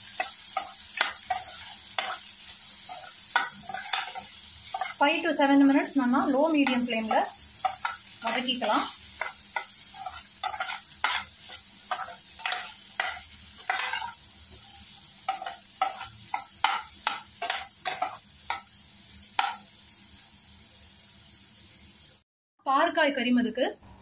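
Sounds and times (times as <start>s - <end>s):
frying sizzle: 0.0s - 22.2s
metal spatula scraping pan: 0.1s - 5.0s, 6.2s - 18.6s.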